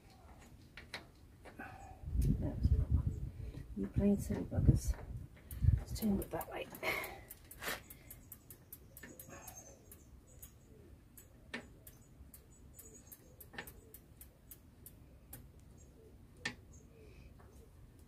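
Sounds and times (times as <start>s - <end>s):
bicycle pedal clicking: 5.3s - 15.7s.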